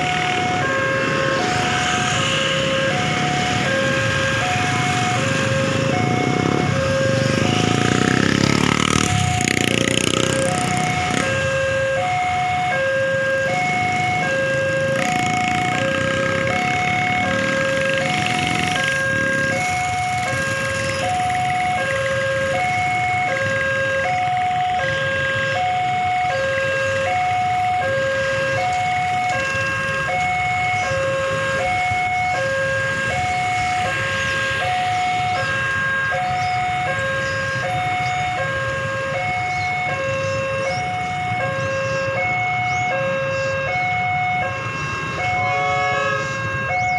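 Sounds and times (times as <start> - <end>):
level crossing alarm two tones: 0.0 - 7.8
motorcycles and cars idling: 0.0 - 45.6.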